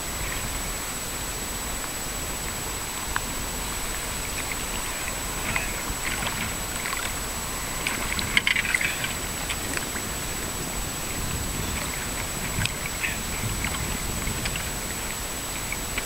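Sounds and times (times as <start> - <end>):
faint high-pitched whine: 0.0 - 16.0
water lapping against boat hull: 1.8 - 16.0
crackling ticks: 3.9 - 16.0.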